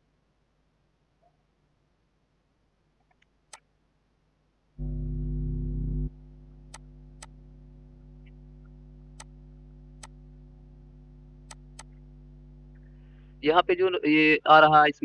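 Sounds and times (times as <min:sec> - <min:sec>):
low electrical hum: 0:04.3 - 0:15.0
computer mouse clicks: 0:06.7 - 0:07.4, 0:08.2 - 0:09.4, 0:10.0 - 0:10.2, 0:11.4 - 0:12.0.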